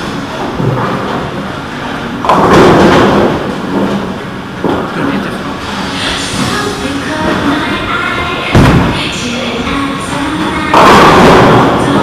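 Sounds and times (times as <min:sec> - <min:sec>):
bowling pins crashing: 0:02.2 - 0:04.9, 0:08.5 - 0:09.1, 0:10.7 - 0:12.0.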